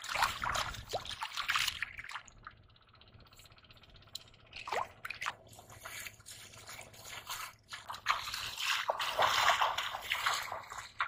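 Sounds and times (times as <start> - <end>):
bare feet splashing water: 0.0 - 2.3, 4.7 - 11.0
fish thrashing in water: 0.0 - 2.5, 4.5 - 11.0.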